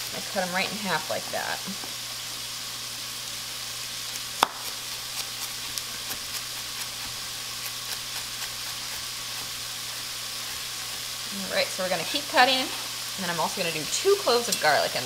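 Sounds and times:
onion sizzling in oil: 0.0s - 15.0s
knife chopping on wooden board: 4.4s - 9.5s.

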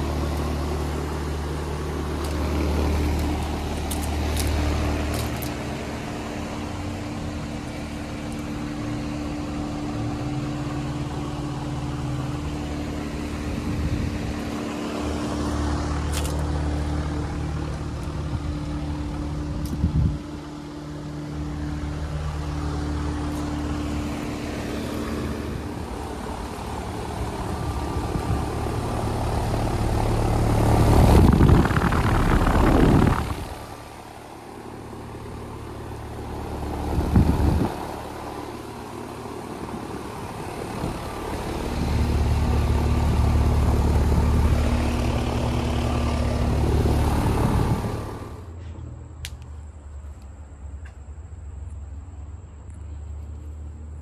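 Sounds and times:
condenser fan whoosh: 0.0s - 18.6s, 19.4s - 48.6s
compressor hum: 0.0s - 54.0s
air rushing across microphone: 30.8s - 33.8s.

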